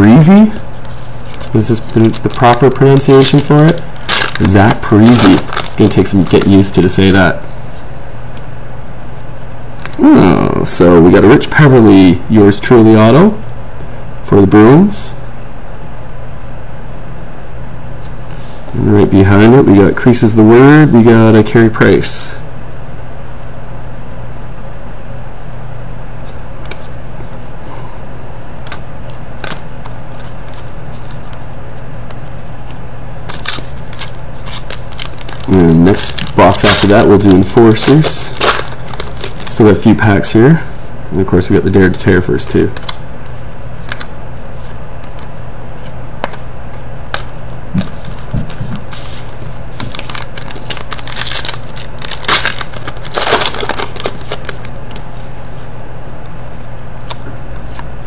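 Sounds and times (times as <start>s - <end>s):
low background hum: 0.0s - 58.0s
foil wrapper crinkling and tearing: 0.8s - 7.2s, 29.4s - 39.8s, 48.9s - 55.1s
cards clicking and tapping: 46.2s - 46.4s.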